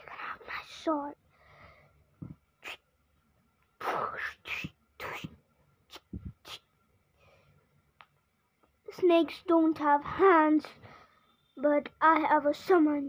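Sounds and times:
boy making whooshing mouth sounds: 0:02.2 - 0:02.9, 0:03.8 - 0:06.8.

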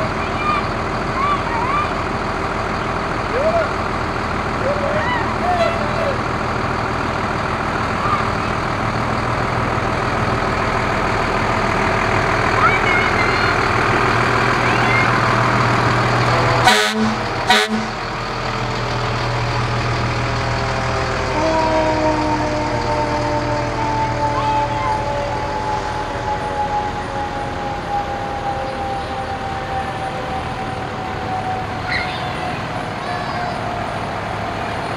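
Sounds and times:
diesel engines running: 0:00.0 - 0:34.9
short horn blasts: 0:16.6 - 0:18.0
siren: 0:20.9 - 0:34.2.

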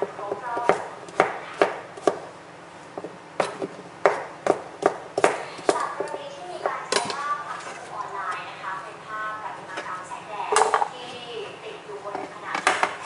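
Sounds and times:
knife chopping on plastic board: 0:00.0 - 0:02.3, 0:03.0 - 0:07.2.

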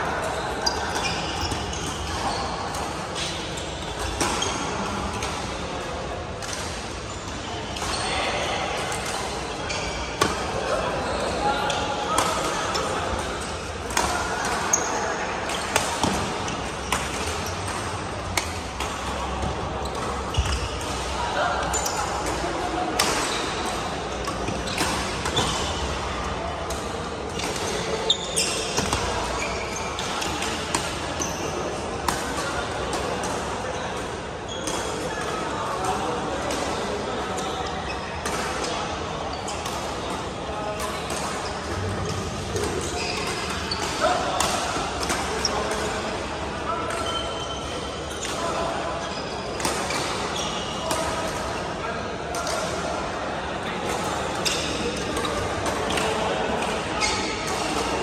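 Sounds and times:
shoes squeaking on hall floor: 0:00.0 - 0:05.6, 0:06.9 - 0:26.3, 0:26.9 - 0:51.8, 0:53.8 - 0:58.0
echoing play on nearby courts: 0:00.0 - 0:58.0
shoe squeaks on court floor: 0:00.3 - 0:02.6, 0:19.3 - 0:21.1, 0:27.5 - 0:30.5, 0:41.4 - 0:44.2, 0:46.9 - 0:50.8.

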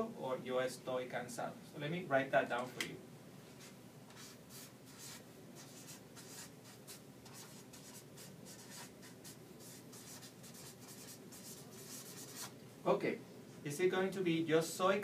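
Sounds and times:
marker pen scratching on paper: 0:03.6 - 0:12.5.

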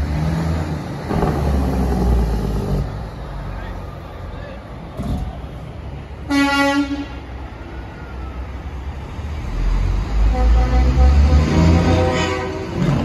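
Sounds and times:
truck diesel engine rumble: 0:00.0 - 0:13.0
horn blast: 0:10.2 - 0:13.0.

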